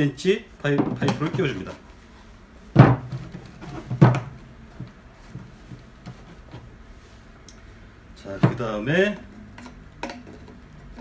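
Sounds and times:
pipe knocking into fitting: 2.8 - 4.3.

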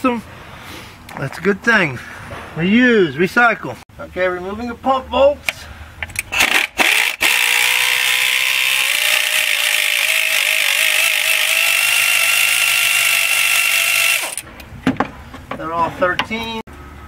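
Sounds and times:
power ratchet whirring: 6.2 - 14.5.

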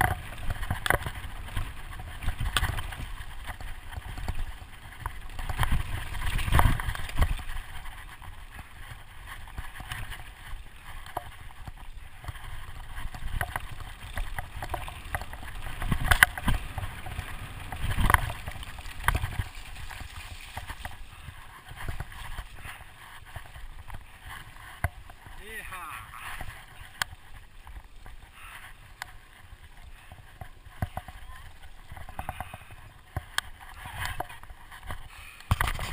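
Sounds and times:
bike knocks and rattles: 0.0 - 25.4, 26.3 - 35.9
wind on microphone: 0.0 - 25.5
bike tyre rumble on gravel: 0.0 - 35.9.

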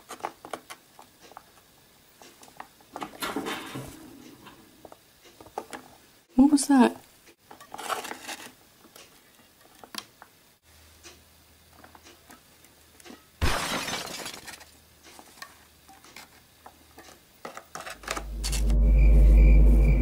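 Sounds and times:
faint clicks and taps: 0.0 - 3.2, 8.8 - 10.4, 11.0 - 13.2, 15.0 - 18.2.

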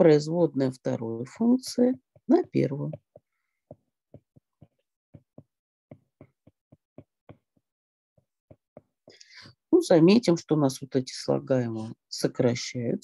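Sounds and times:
stylus tapping on glass screen: 2.0 - 9.2.

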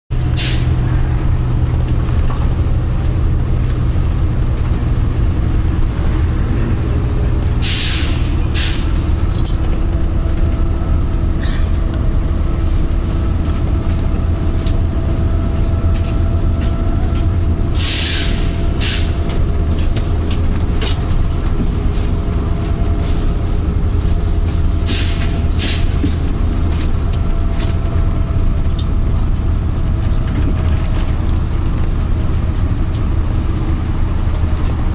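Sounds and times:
diesel bus engine droning: 0.1 - 34.9
air brake hiss: 0.3 - 0.8, 7.6 - 9.0, 17.8 - 19.1.

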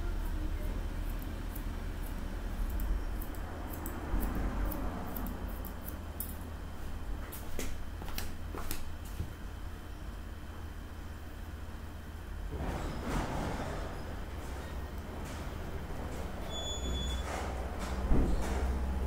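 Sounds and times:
steady low hum: 0.0 - 19.0
scissors snipping hair: 0.2 - 6.4.

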